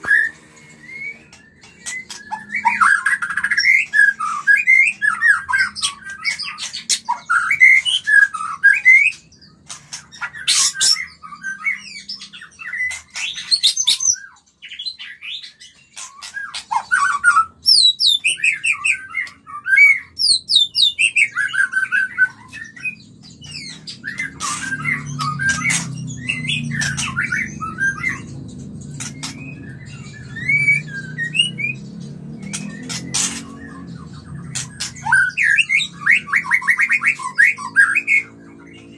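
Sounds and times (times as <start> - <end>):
bird singing whistled phrases: 0.0 - 9.3, 29.0 - 38.4.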